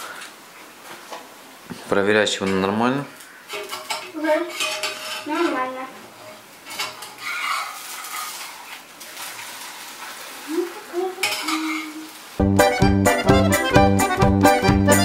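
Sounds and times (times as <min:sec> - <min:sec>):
frying sizzle: 0:00.0 - 0:15.0
metal spatula scraping a pan: 0:03.4 - 0:12.2
accordion music: 0:12.4 - 0:15.0.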